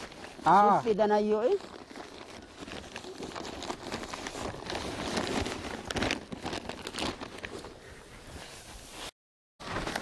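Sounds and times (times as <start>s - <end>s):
material rustling and crunching: 0.0s - 7.7s.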